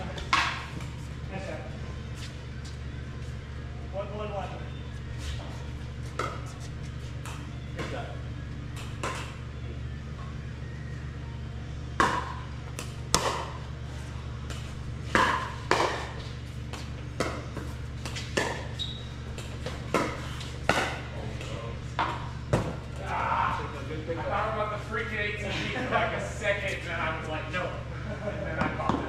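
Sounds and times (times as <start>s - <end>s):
steady low hum: 0.0s - 29.0s
paddles hitting plastic ball: 8.7s - 9.4s, 14.4s - 18.7s, 19.3s - 21.1s.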